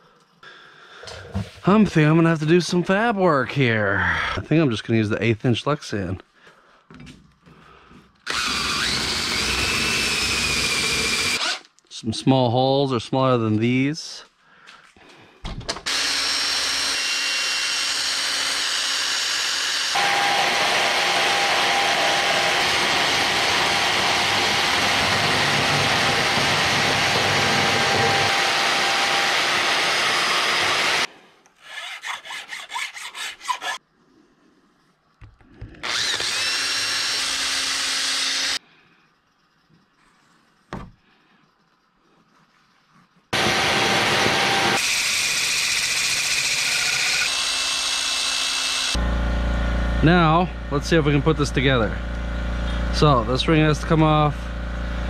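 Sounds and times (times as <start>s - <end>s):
cordless drill boring plastic: 8.2s - 11.8s, 15.8s - 31.1s, 35.6s - 38.6s, 43.4s - 49.0s
hand scraping: 31.5s - 35.7s.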